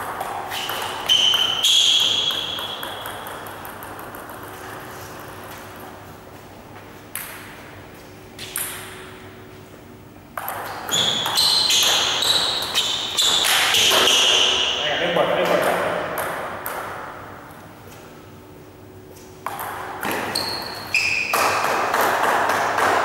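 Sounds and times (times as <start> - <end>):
ball bouncing: 0.0 - 6.2, 6.8 - 7.8, 8.4 - 9.3, 10.3 - 17.4, 19.4 - 23.0
table tennis ball clicking: 0.1 - 5.8
shoes squeaking on floor: 0.4 - 3.1, 10.7 - 14.9, 20.0 - 21.6.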